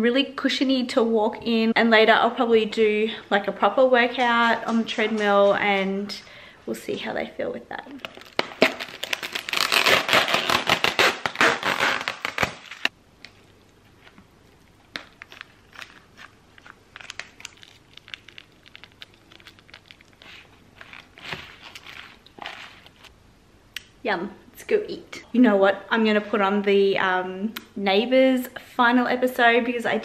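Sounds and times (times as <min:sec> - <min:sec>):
plastic tub crinkling: 0:07.9 - 0:23.1
fork tossing salad in plastic tub: 0:19.4 - 0:23.1.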